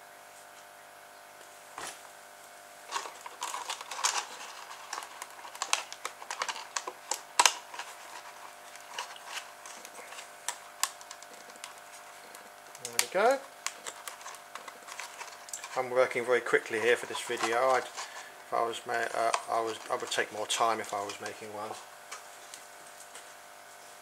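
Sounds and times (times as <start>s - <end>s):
plastic clicks and crackles: 2.9s - 18.2s, 18.9s - 21.5s.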